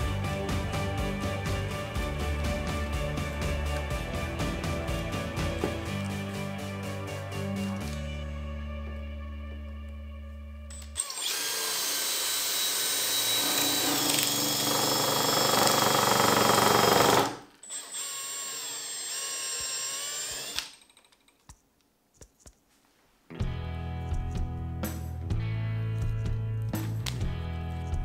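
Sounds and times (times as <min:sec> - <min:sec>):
background music: 0:00.0 - 0:11.2, 0:23.3 - 0:28.0
cordless drill whining: 0:10.7 - 0:20.8.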